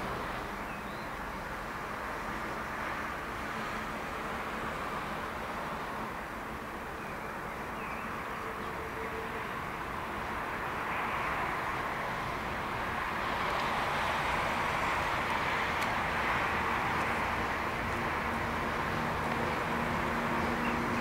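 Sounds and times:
train wheels rolling on rail: 11.6s - 21.0s.

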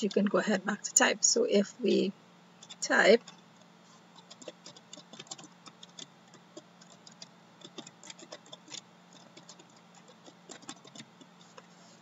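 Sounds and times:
faint low hum: 0.0s - 12.0s
keyboard keys clicking: 4.2s - 11.6s.

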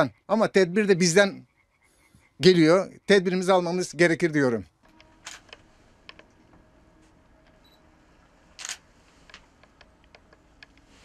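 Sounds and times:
faint clicks and taps: 9.3s - 11.0s.

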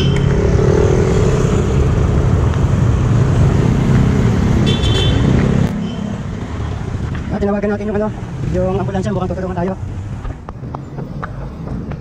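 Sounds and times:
low traffic rumble: 0.0s - 12.0s
vehicle engine noise: 0.0s - 12.0s.

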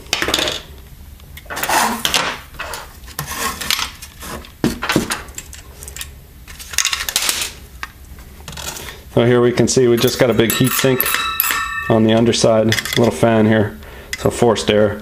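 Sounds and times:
plastic and metal parts clattering: 1.5s - 7.6s.

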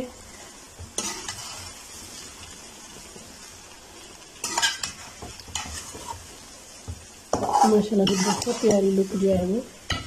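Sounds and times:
food sizzling in a metal pan: 0.0s - 10.0s
metal spatula scraping pan: 0.8s - 1.8s, 4.4s - 6.3s, 7.3s - 10.0s.

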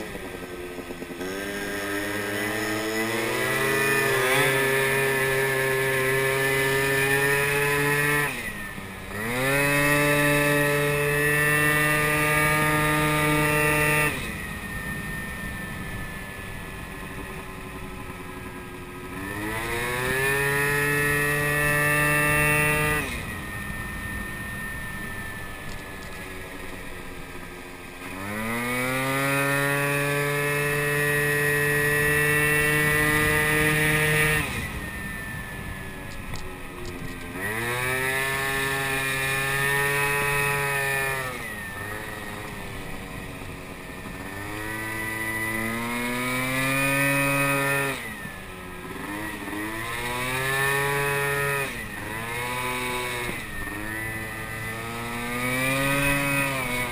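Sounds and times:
moped engine revving: 0.0s - 56.9s
wind and road noise: 0.0s - 56.9s.

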